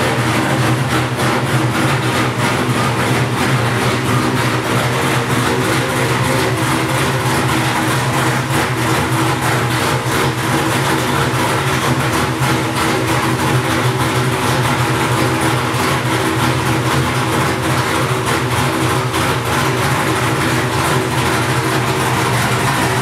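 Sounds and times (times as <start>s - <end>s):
engine running steadily: 0.0s - 23.0s.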